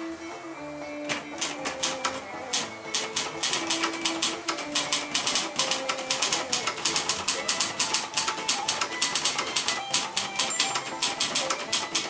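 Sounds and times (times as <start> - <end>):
typewriter keystroke clacks: 1.1 - 12.0.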